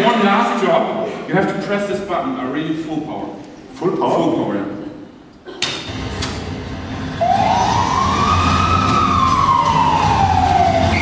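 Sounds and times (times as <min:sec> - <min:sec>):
ambulance siren wailing: 0:07.0 - 0:11.0.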